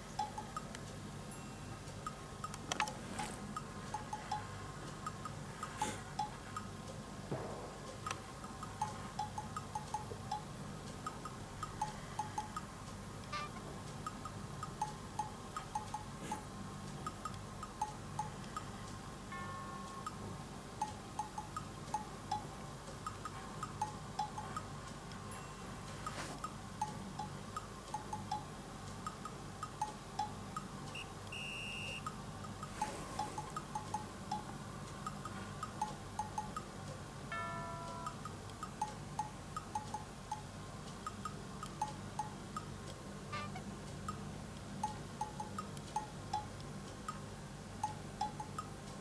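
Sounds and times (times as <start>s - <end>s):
light tinkling background music: 1.2s - 2.1s, 19.3s - 20.2s, 25.2s - 26.9s, 37.3s - 38.3s.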